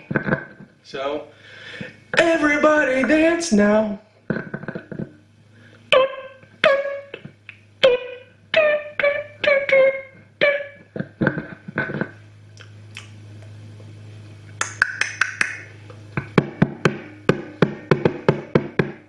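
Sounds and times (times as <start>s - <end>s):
steady low hum: 0.0s - 19.0s
plucked ringing notes: 5.9s - 7.2s, 16.2s - 19.0s.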